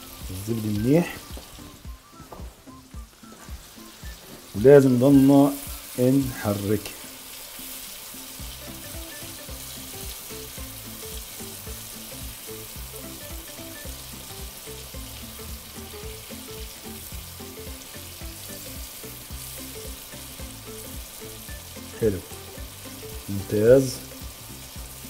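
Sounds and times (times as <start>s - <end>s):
sauce sizzling in a frying pan: 0.0s - 25.0s
soft background music: 0.0s - 25.0s.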